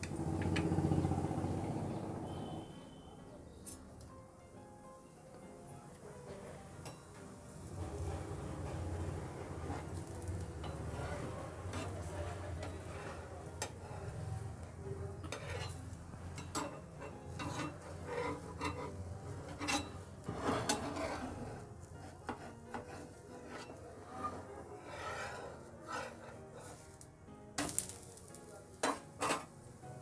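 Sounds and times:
metal spatula scraping a pan: 7.7s - 14.4s, 15.2s - 27.0s, 27.6s - 29.5s.

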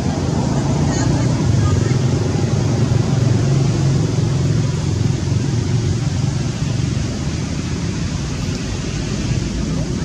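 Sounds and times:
steady hiss: 0.0s - 10.0s.

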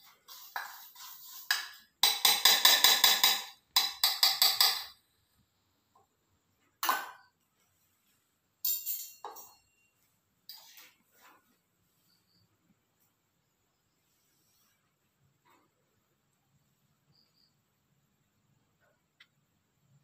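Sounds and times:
spoon scraping bowl: 0.0s - 4.9s, 10.5s - 11.6s
metal spoon clinking on bowl: 8.6s - 9.9s.

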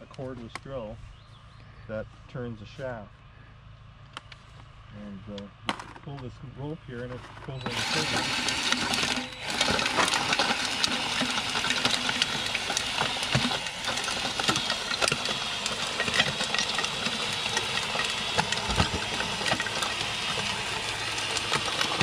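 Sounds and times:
tines clicking and scraping in soil: 7.0s - 22.0s
cordless drill running: 7.6s - 22.0s.

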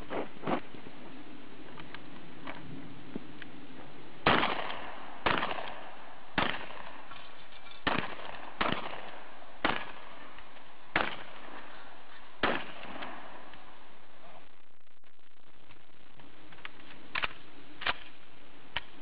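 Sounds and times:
shotgun shots: 4.2s - 7.1s, 7.8s - 10.2s, 10.9s - 11.7s, 12.4s - 13.5s.

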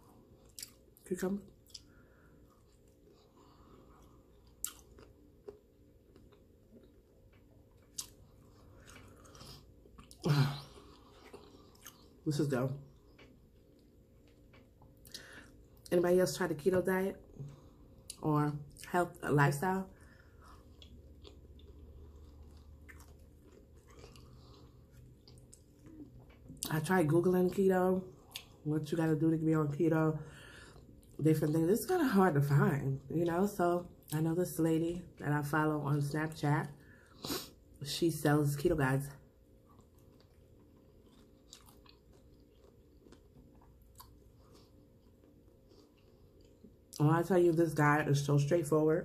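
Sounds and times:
chewing cucumber: 0.0s - 16.0s, 20.0s - 29.1s, 39.5s - 47.0s.

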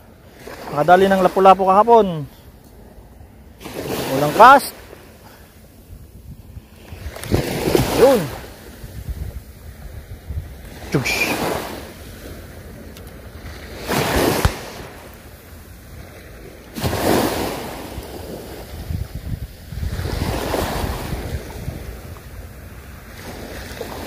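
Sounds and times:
small waves washing ashore: 0.0s - 24.0s
wind on microphone: 5.8s - 12.0s, 15.9s - 24.0s.

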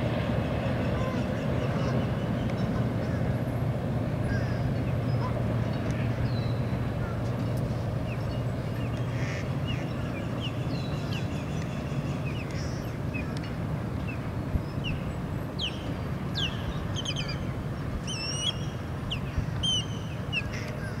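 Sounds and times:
small birds chirping: 18.1s - 21.0s.

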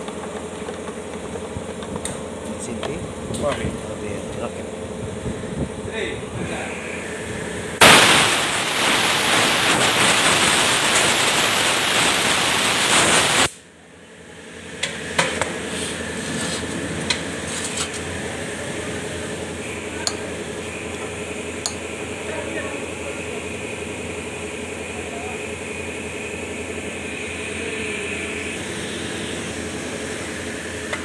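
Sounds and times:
compressed air blow gun hissing: 7.8s - 13.6s.

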